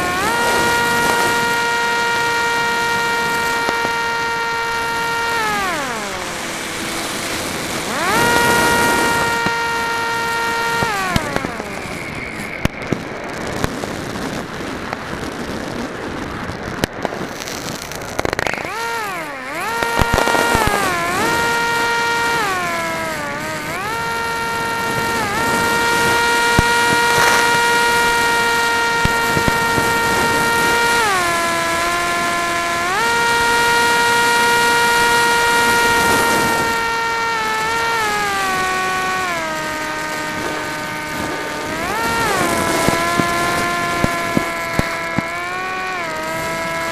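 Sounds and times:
propeller motor whine: 0.0s - 46.9s
sharp pops: 0.0s - 46.9s
wind rush: 4.2s - 33.7s.

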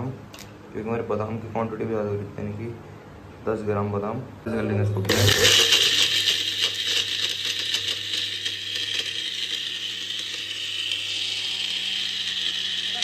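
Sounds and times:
blender motor running: 5.1s - 13.0s.

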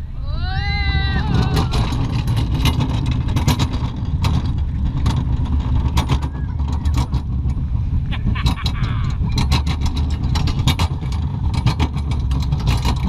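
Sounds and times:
roller coaster rumbling and rattling: 0.0s - 13.0s.

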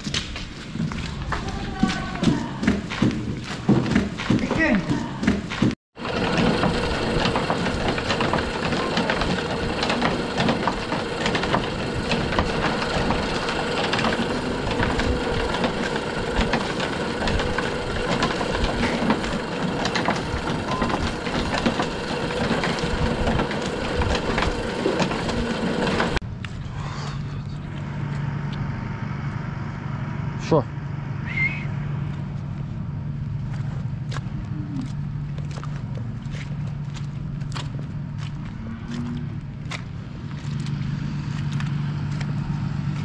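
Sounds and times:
motor hum: 0.0s - 43.0s
conveyor chain clattering: 5.6s - 26.2s.

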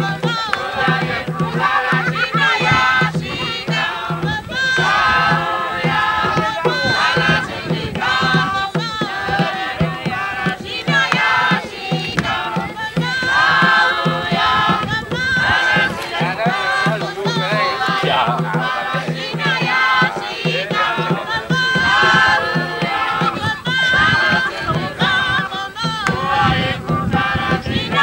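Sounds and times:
hand drum beat: 0.0s - 28.0s
villagers singing and chanting: 0.0s - 28.0s.

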